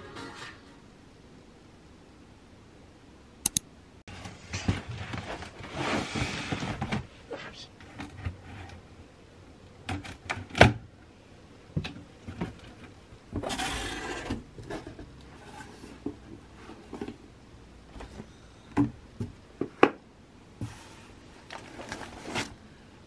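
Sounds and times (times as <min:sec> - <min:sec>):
items shifting in box: 0:21.4 - 0:22.6.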